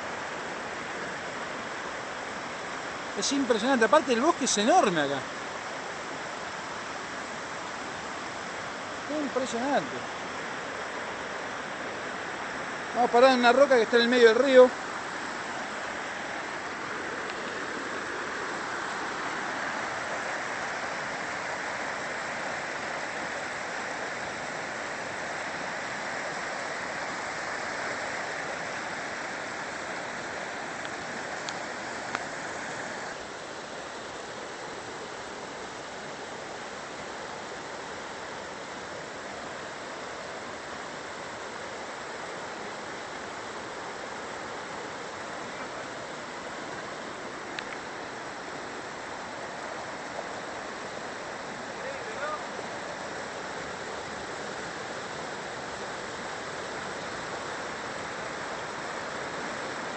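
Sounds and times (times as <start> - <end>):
river rushing over rocks: 0.0 - 59.9.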